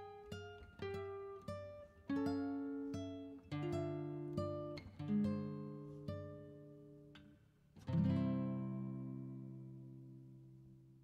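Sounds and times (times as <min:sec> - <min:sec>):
acoustic guitar chord ringing: 0:07.8 - 0:10.9.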